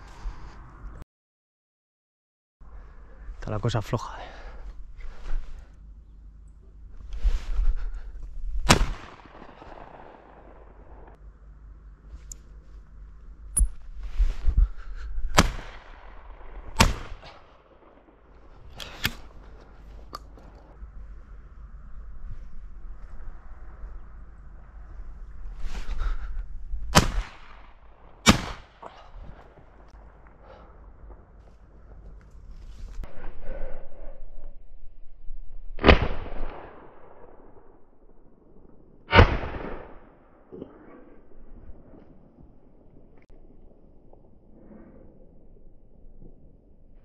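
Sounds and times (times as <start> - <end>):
shotgun shots echoing: 8.6 - 11.2, 15.3 - 19.3, 26.9 - 29.0, 39.1 - 40.2.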